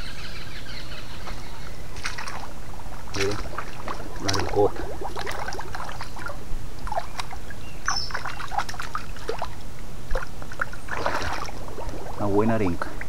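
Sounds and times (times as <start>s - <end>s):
birds chirping: 0.0s - 9.8s
river water trickling around boots: 1.2s - 13.0s.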